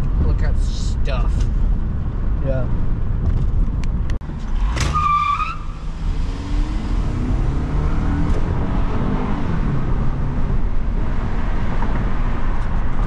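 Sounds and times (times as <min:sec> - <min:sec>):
car engine and tyre rumble: 0:00.0 - 0:13.0.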